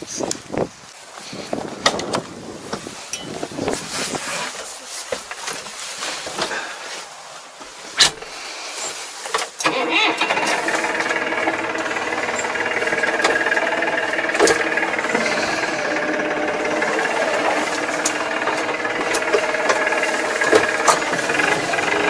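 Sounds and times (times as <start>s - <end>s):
cab clicks and rattles: 9.3s - 22.0s
tractor engine running: 9.6s - 22.0s.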